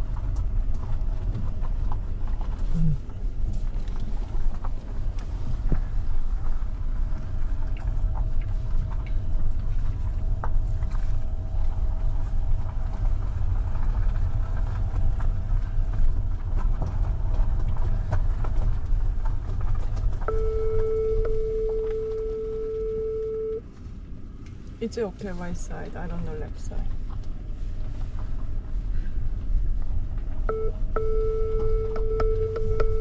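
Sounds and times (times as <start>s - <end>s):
car engine and tyres rumbling: 0.0s - 33.0s
electronic warning tone: 20.3s - 23.6s, 30.5s - 33.0s.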